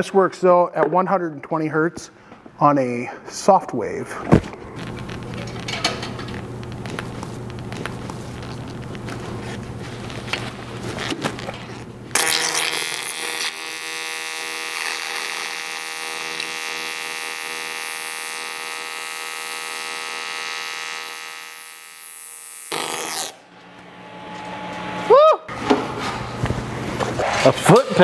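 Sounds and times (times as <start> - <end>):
welding arc buzzing: 4.8 - 25.1.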